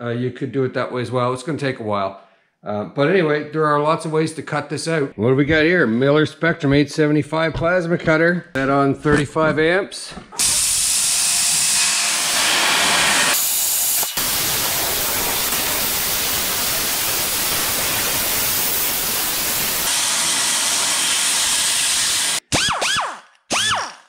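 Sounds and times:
plasma cutter hissing: 10.4 - 22.4.

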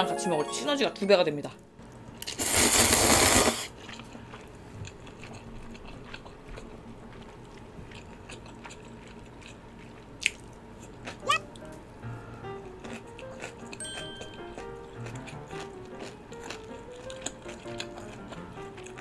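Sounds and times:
noodles slurped loudly: 2.2 - 3.8
close-up chewing: 2.2 - 11.7, 12.4 - 13.8, 14.5 - 19.0.

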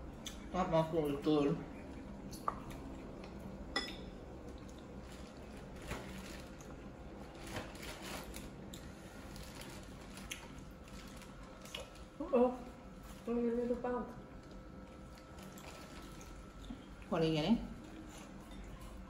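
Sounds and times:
wet eating sounds: 4.4 - 6.8.

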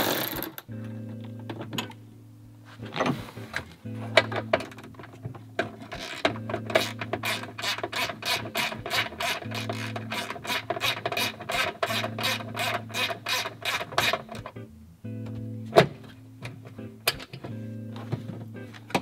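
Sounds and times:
socket ratchet clicking: 5.9 - 14.5.

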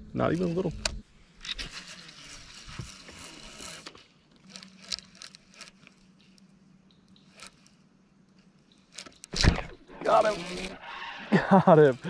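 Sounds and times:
reel clicking: 0.2 - 10.8
fishing reel whirring: 0.2 - 12.0.

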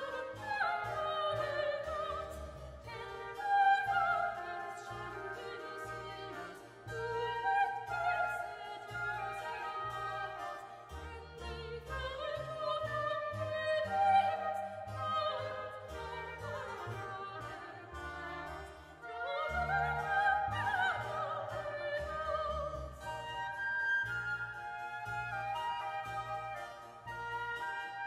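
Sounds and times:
double bass: 0.0 - 28.0
flute: 0.0 - 28.0
oboe: 0.0 - 28.0
soprano singing with vibrato: 0.0 - 28.0.

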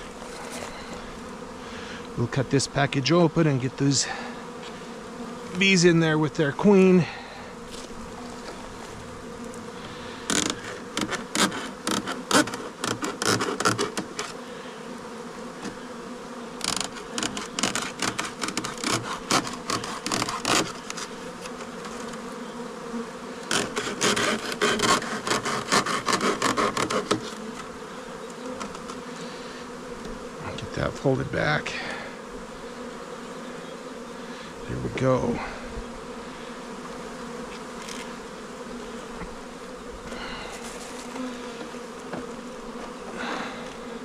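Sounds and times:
honeybees buzzing: 0.0 - 44.0
knife scraping wood: 10.3 - 14.4, 16.7 - 22.0, 23.5 - 27.6.

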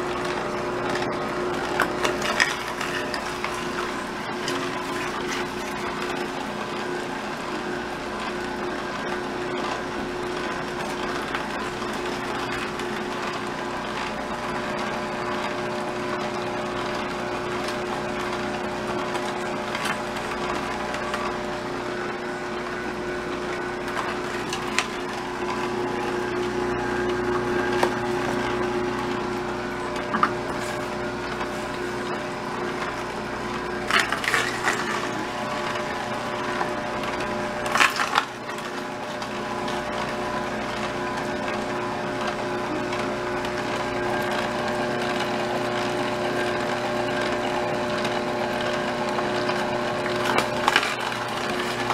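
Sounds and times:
auger grinding carrot: 0.0 - 51.9
juicer motor humming: 0.0 - 51.9
produce crackling as crushed: 0.2 - 6.5, 17.4 - 21.4, 23.7 - 26.6, 29.9 - 44.5, 47.0 - 51.9.

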